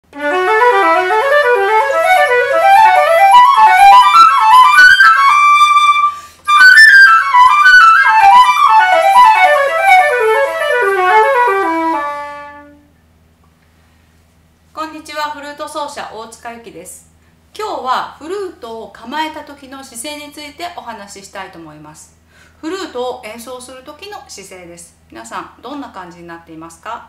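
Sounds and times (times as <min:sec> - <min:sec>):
solo flute playing: 0:00.0 - 0:12.9
quick breath: 0:06.1 - 0:06.5, 0:22.2 - 0:22.6.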